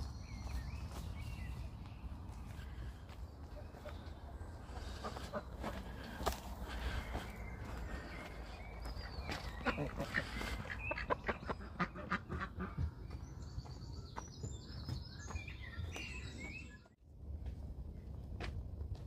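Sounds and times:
hens clucking: 3.4s - 13.4s.

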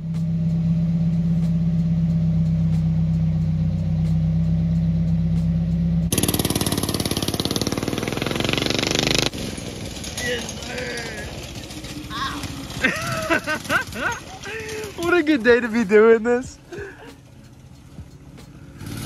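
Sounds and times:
car engine idling: 0.0s - 19.0s
go-kart engine running: 5.3s - 19.0s.

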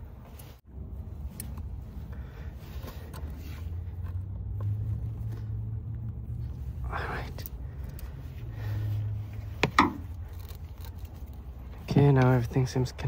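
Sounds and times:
steady low rumble: 0.0s - 13.0s
pliers clicking and rubbing: 10.0s - 11.6s.

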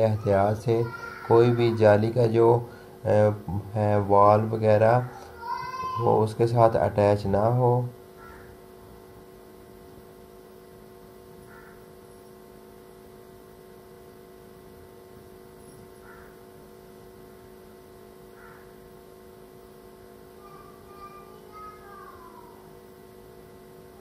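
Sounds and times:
faint electrical hum: 0.0s - 24.0s.

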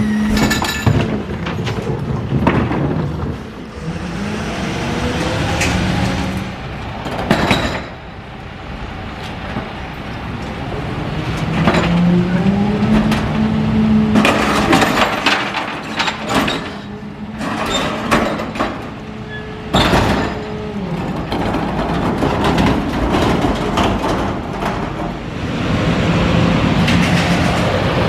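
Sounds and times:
garbage truck engine and hydraulics: 0.0s - 28.0s
loud metallic clatter: 0.1s - 3.4s, 14.1s - 19.0s.

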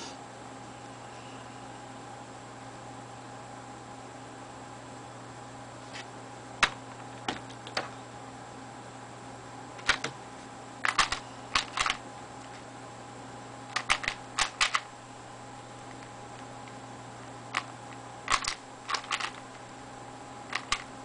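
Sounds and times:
puzzle cube clacking clicks: 10.8s - 12.0s, 13.8s - 14.9s, 18.3s - 19.4s, 20.5s - 20.9s.

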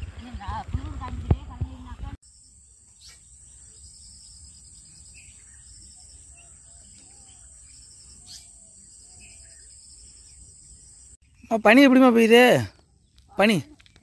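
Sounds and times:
insects chirping: 2.2s - 12.2s
soft bird calls: 2.9s - 14.0s.

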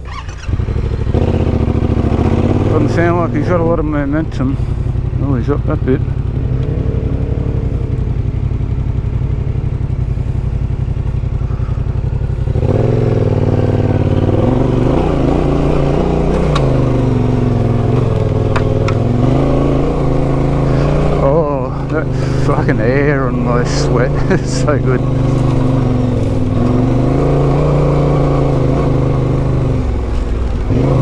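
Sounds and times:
motorcycle engine running: 0.0s - 31.0s.

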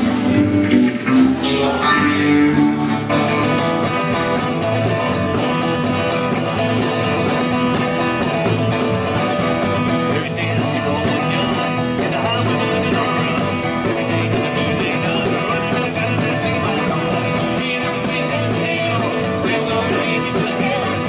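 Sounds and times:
country band music with guitar: 0.0s - 21.0s.

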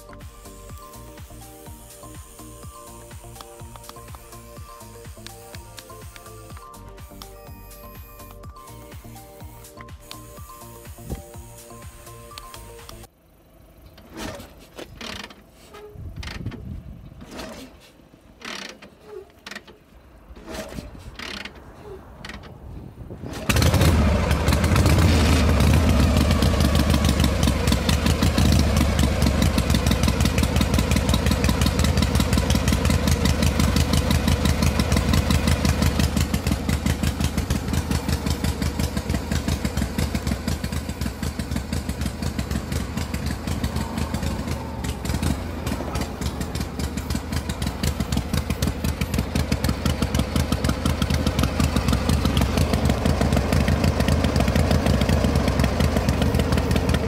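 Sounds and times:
tractor engine chugging: 18.0s - 57.0s.

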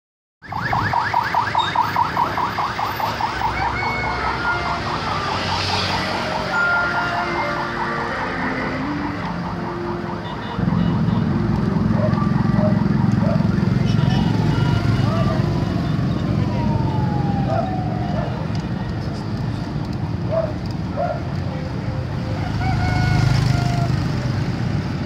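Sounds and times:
electronic siren yelping: 0.4s - 18.5s
road traffic noise: 0.4s - 25.0s.

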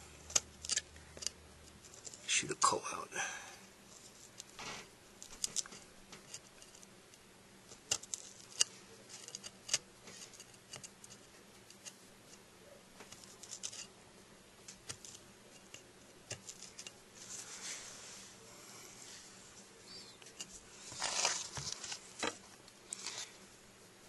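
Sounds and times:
knife clicking and scraping wood: 0.3s - 2.2s, 7.7s - 12.0s, 13.1s - 13.9s.

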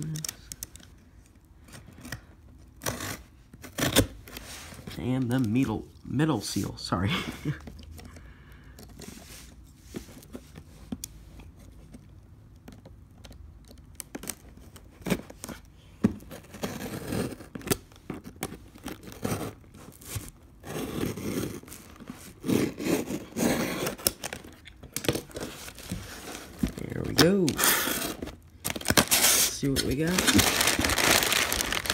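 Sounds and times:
tape tearing: 1.9s - 4.4s, 16.4s - 31.9s
cardboard scraping: 16.2s - 31.9s
blade slitting packing tape: 27.5s - 31.9s.

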